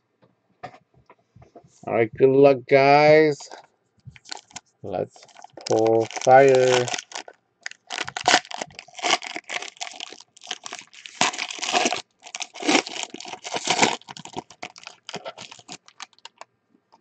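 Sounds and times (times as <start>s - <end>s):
foil wrapper tearing and crinkling: 4.2s - 4.6s, 5.2s - 16.4s.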